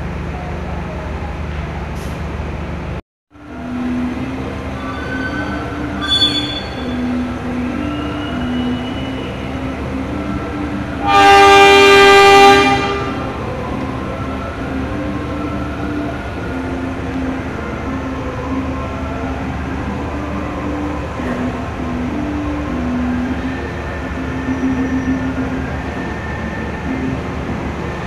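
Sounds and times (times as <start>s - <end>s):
short high toot: 4.8s - 7.1s
train horn blast: 4.8s - 7.3s, 11.0s - 13.4s.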